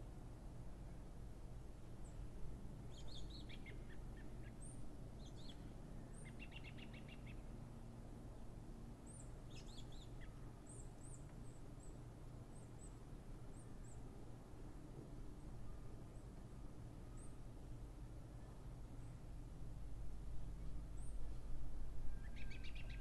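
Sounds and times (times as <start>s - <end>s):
faint low outdoor background: 0.0s - 23.0s
small songbirds chirping: 2.9s - 7.5s, 9.0s - 14.0s, 22.2s - 23.0s.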